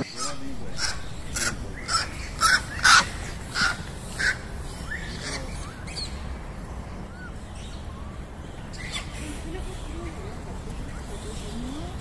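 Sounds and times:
harsh animal calls: 0:00.0 - 0:06.0.

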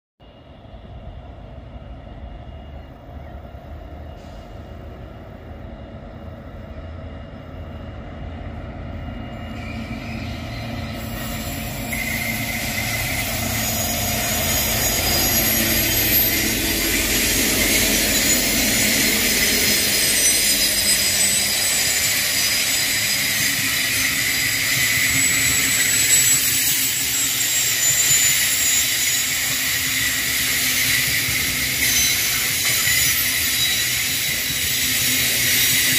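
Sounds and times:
locomotive engine: 0:01.2 - 0:35.9
steel wheels hissing on rails: 0:02.4 - 0:08.3, 0:09.1 - 0:35.9.

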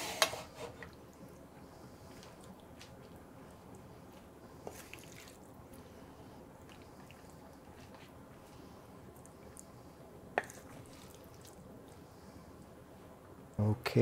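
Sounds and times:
spoon squishing in thick sauce: 0:02.0 - 0:05.9, 0:06.6 - 0:09.8, 0:10.4 - 0:12.0.

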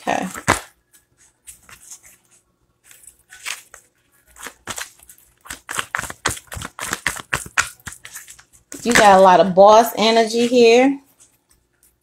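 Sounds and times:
cards being shuffled: 0:00.1 - 0:09.2.

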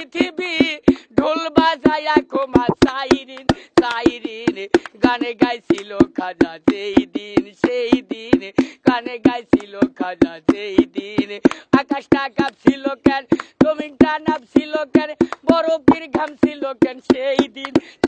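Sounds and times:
steady drumbeat: 0:02.6 - 0:02.9.

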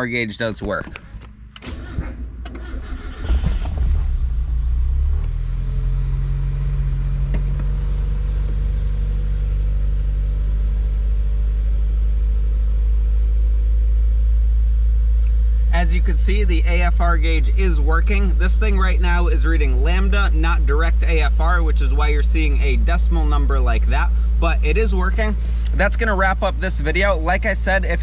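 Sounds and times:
car engine idling: 0:00.0 - 0:28.0
starter cranking engine: 0:01.5 - 0:04.4.

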